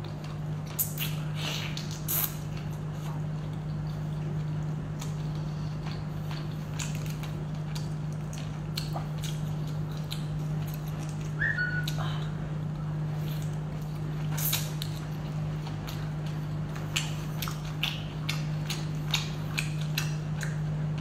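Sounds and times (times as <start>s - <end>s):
steady low hum: 0.0s - 21.0s
wet chewing: 0.0s - 21.0s.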